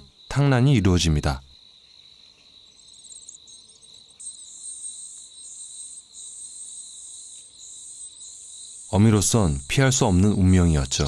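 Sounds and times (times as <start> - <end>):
bird chick high-pitched chittering: 2.0 - 10.4.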